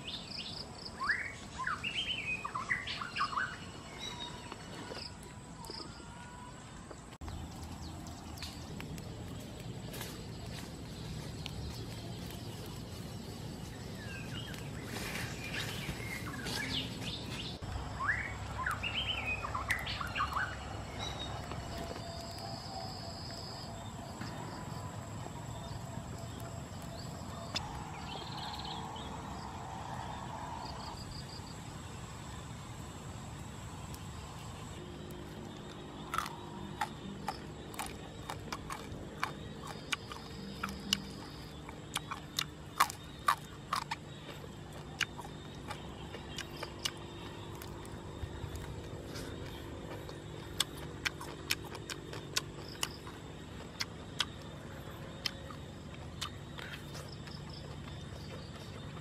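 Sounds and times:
outdoor background noise: 0:00.0 - 0:59.0
birds chirping and calling: 0:07.2 - 0:22.8.

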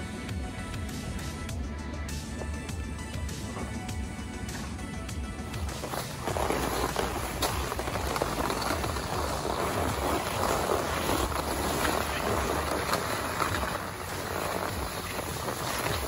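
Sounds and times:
skis scraping over snow: 0:03.4 - 0:16.0.

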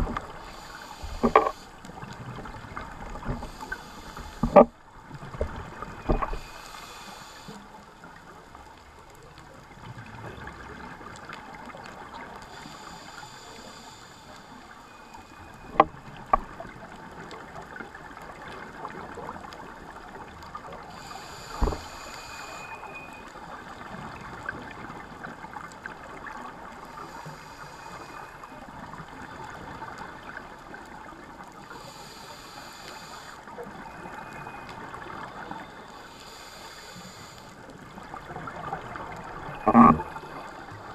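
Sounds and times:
steady crackling haze: 0:00.0 - 0:40.9
scuba regulator breathing: 0:00.1 - 0:01.9, 0:03.2 - 0:04.6, 0:06.0 - 0:07.8, 0:12.4 - 0:15.6, 0:20.9 - 0:23.2, 0:26.9 - 0:28.5, 0:31.6 - 0:37.7.

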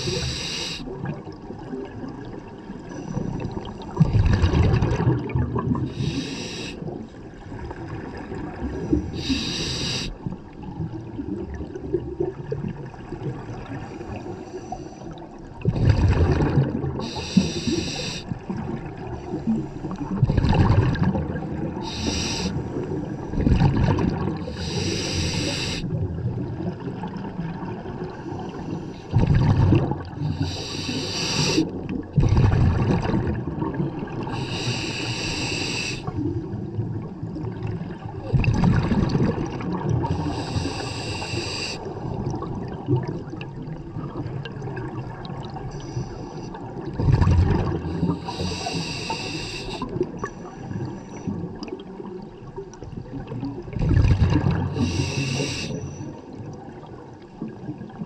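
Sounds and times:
hissing regulator inhale: 0:00.0 - 0:00.9, 0:05.9 - 0:07.0, 0:09.1 - 0:10.2, 0:17.0 - 0:18.3, 0:21.8 - 0:22.9, 0:24.5 - 0:25.9, 0:30.2 - 0:31.7, 0:34.3 - 0:36.2, 0:40.0 - 0:42.0, 0:45.7 - 0:46.6, 0:47.8 - 0:50.6, 0:54.7 - 0:56.1
exhaled bubbles rushing: 0:03.3 - 0:06.2, 0:15.5 - 0:17.8, 0:18.4 - 0:25.3, 0:29.1 - 0:34.5, 0:36.1 - 0:45.7, 0:46.6 - 0:49.1, 0:49.7 - 0:55.6.

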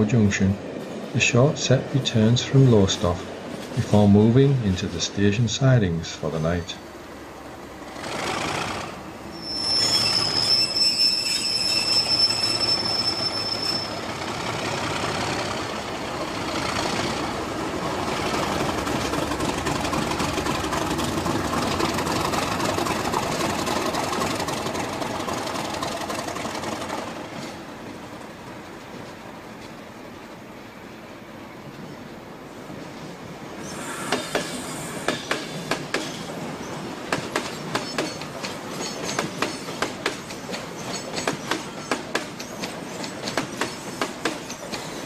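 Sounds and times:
train rumbling: 0:00.0 - 0:45.0
train wheel squeal: 0:09.2 - 0:14.5, 0:33.6 - 0:36.3, 0:37.5 - 0:45.0.

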